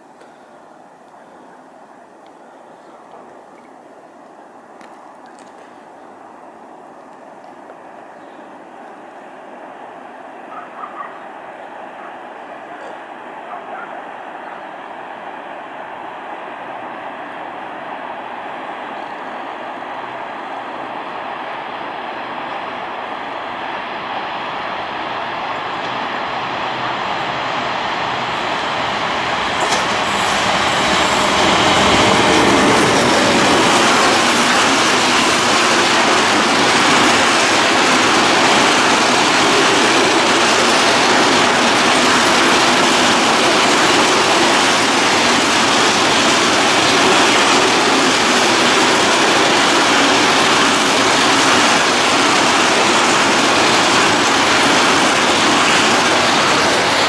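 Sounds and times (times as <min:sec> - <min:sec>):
electric locomotive passing: 0:00.0 - 0:57.0
freight wagon wheels on rails: 0:27.9 - 0:57.0.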